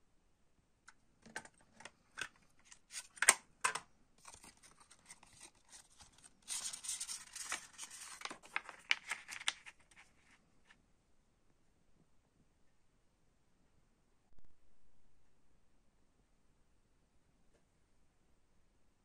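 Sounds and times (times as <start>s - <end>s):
paper rustling: 2.6s - 3.3s, 4.2s - 10.4s
plastic case clicks and snaps: 3.0s - 3.9s.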